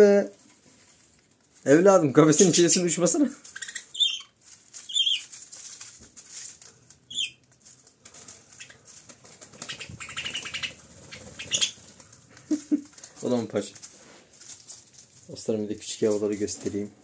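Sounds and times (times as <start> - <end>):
bird wings flapping: 8.0 - 12.8.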